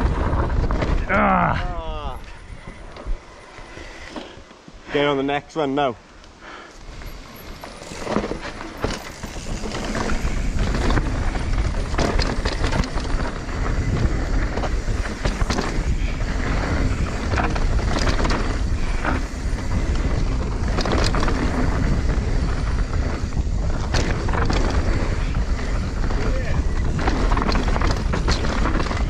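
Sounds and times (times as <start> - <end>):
wind buffeting microphone: 6.8 - 29.0
tyres rumbling on dirt: 6.9 - 29.0
bike clattering and knocking: 7.5 - 29.0.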